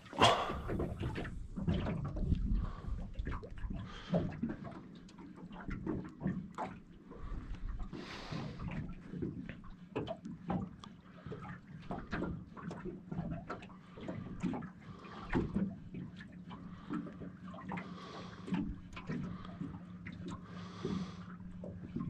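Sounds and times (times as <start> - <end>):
light splashes: 0.0 - 22.0
waves lapping against boat hull: 0.0 - 22.0
steady low hum: 13.7 - 22.0.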